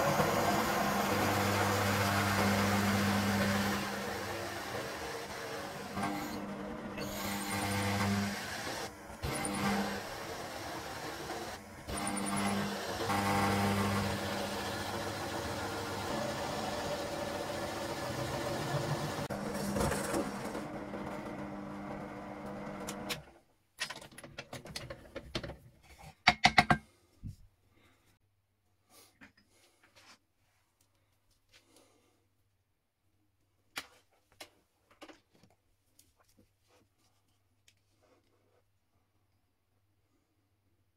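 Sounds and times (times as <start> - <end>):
hole saw rasping through wood: 0.0 - 20.6
drill press motor hum: 0.0 - 23.2
sharp knocks and clicks: 26.2 - 26.9.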